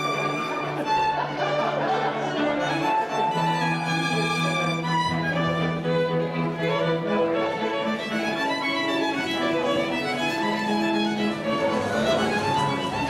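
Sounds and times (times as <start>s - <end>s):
string music led by violin: 0.0s - 13.0s.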